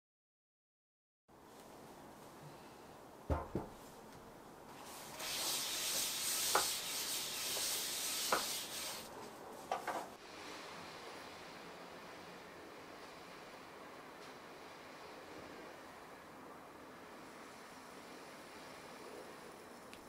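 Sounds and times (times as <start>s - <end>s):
quick knocks: 3.3s - 3.8s
paper towel rubbing a frying pan: 4.8s - 9.1s.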